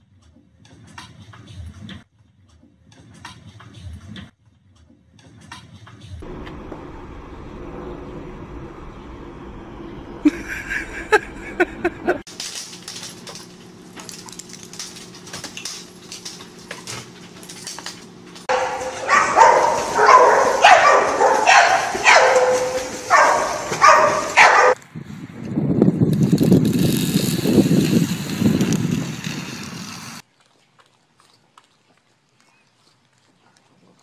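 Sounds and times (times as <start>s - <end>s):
steady low rumbling noise: 6.2s - 12.2s
low hum: 6.2s - 24.2s
dogs splashing in pool: 18.4s - 24.8s
dog barking loudly: 18.5s - 24.8s.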